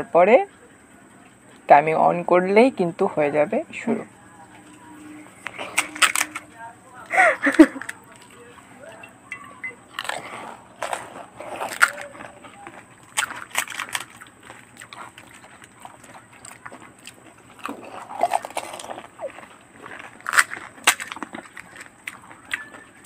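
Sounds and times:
crisp shells crunching: 5.4 - 6.5, 9.8 - 23.0
wet slurping and chewing: 9.8 - 23.0.

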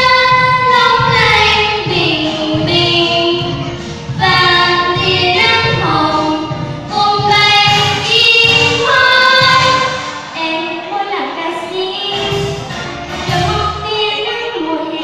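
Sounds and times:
girls singing together: 0.0 - 12.6
accompaniment music: 0.0 - 15.0.

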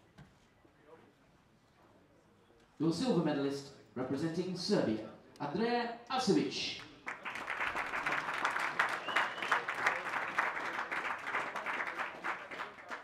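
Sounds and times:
audience applauding: 7.0 - 13.0.

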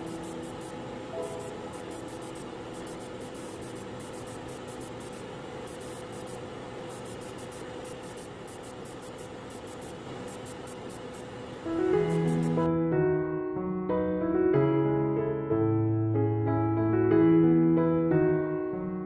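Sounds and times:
faint steady hum: 0.0 - 12.7
hiss of spraying air: 0.0 - 12.7.

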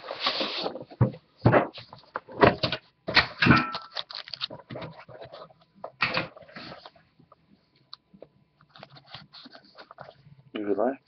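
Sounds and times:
foil pack crinkling: 3.7 - 7.0.

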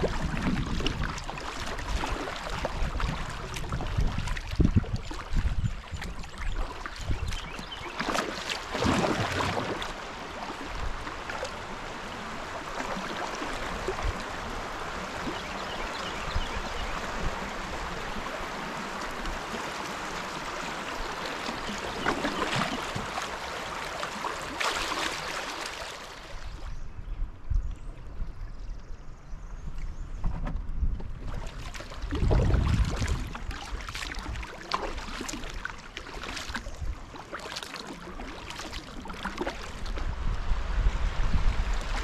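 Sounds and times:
river water rushing: 16.8 - 26.4.

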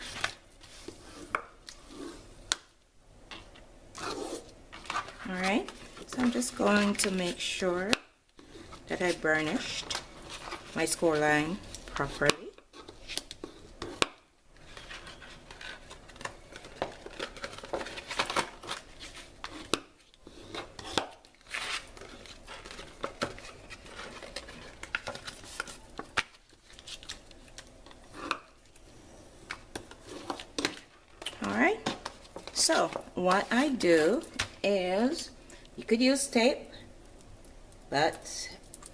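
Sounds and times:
paper rustling: 14.6 - 20.6, 21.4 - 27.6.

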